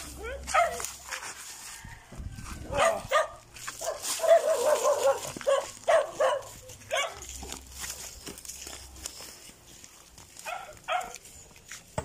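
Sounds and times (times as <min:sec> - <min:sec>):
dog barking: 0:00.4 - 0:00.9, 0:02.7 - 0:07.3, 0:10.4 - 0:11.2.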